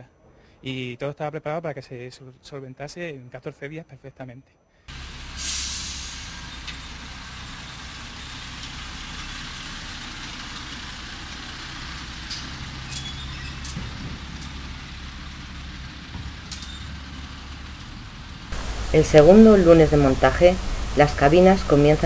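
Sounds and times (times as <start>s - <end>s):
loud hiss: 4.9s - 10.2s, 18.5s - 22.0s
diesel truck engine humming: 4.9s - 22.0s.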